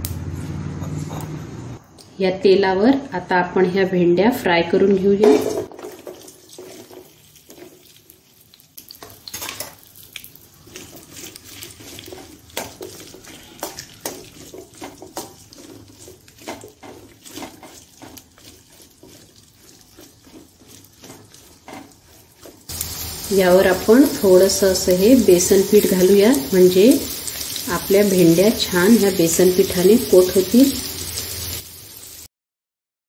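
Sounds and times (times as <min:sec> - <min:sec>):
steel spoon scraping a pan: 0:10.6 - 0:31.6.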